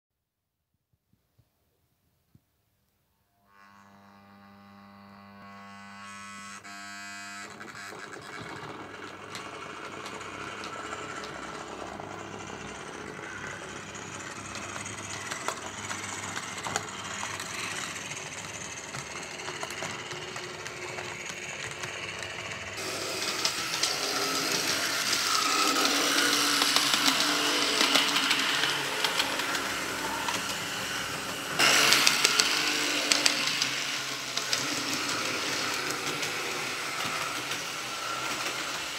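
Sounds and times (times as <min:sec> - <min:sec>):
steady electric hum: 0:03.3 - 0:07.6
model train motor whirring: 0:03.5 - 0:38.9
wheels rattling over rails: 0:07.9 - 0:38.9.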